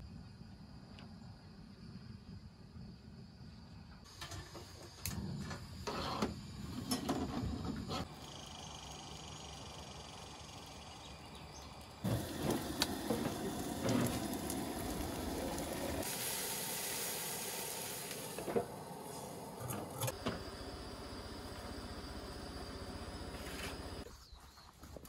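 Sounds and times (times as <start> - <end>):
camp stove hissing: 4.1 - 24.1.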